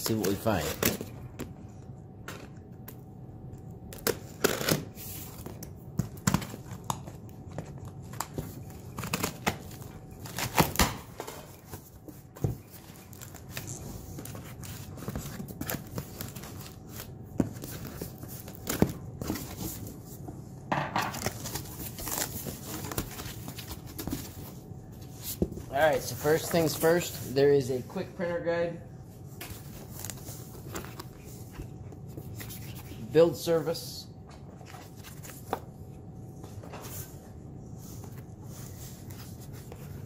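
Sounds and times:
paper packing rustling: 21.0s - 27.7s.

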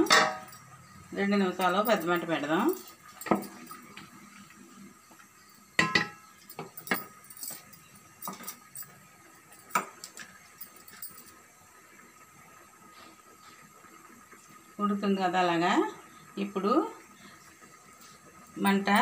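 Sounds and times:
utensil clinking on metal pot: 0.0s - 0.7s, 1.6s - 4.0s, 5.8s - 11.3s.

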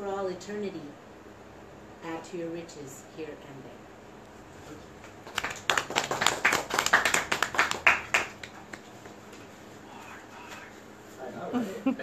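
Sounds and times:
audience applauding: 5.2s - 9.2s.

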